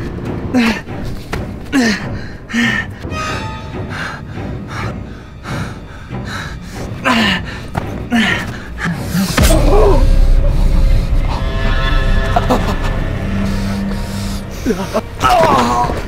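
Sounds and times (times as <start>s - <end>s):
man breathing hard: 3.8s - 9.4s
loud low rumble: 9.4s - 15.2s.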